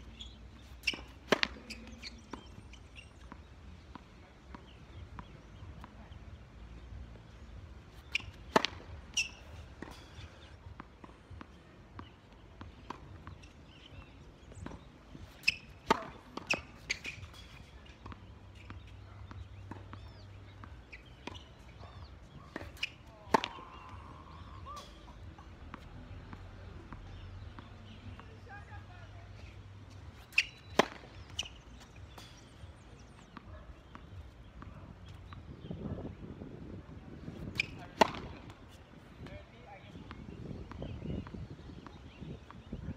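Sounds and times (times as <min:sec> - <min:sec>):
racket hitting tennis ball: 0:00.2 - 0:02.6, 0:07.9 - 0:25.9, 0:29.8 - 0:32.6, 0:37.3 - 0:39.0
tennis ball bouncing on court: 0:00.2 - 0:35.5, 0:37.2 - 0:42.9.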